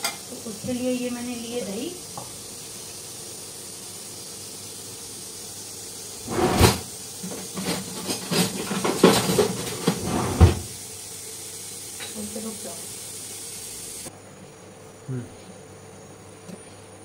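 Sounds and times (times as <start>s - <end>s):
food hissing on the stove: 0.0s - 17.0s
kitchen utensils clattering: 6.2s - 10.7s.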